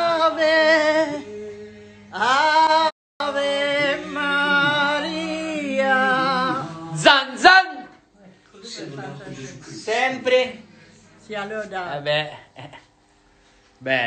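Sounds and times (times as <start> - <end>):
voices singing a hymn: 0.0 - 7.8.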